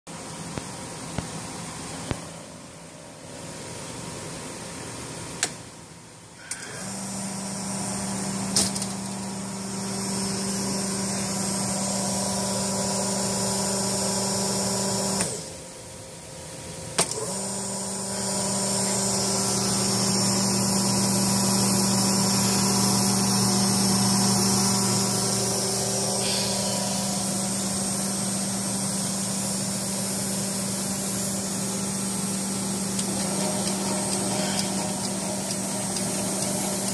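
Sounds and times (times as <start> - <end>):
machine motor and vacuum humming: 6.5 - 15.6, 17.0 - 36.9.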